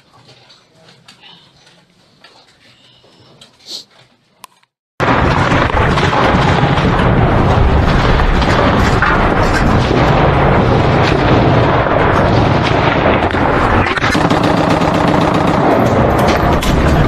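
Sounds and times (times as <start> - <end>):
heavy machine-gun fire: 5.0 - 17.0.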